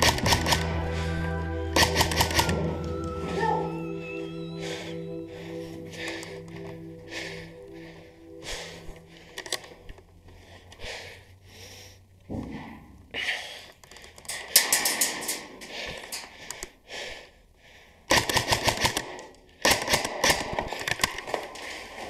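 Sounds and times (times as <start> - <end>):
airsoft gun firing bursts: 18.1 - 21.0.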